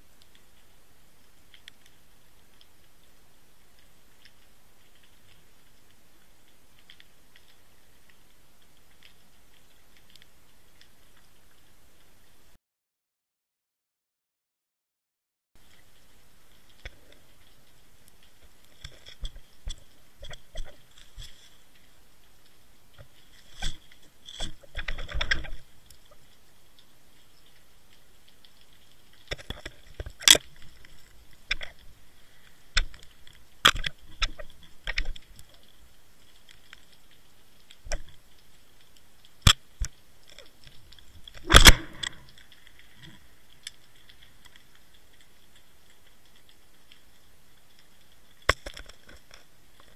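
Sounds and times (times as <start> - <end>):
underwater clicks and knocks: 18.2 - 21.5, 22.9 - 26.9, 28.4 - 31.9, 32.8 - 35.7, 39.4 - 44.6, 48.4 - 49.9.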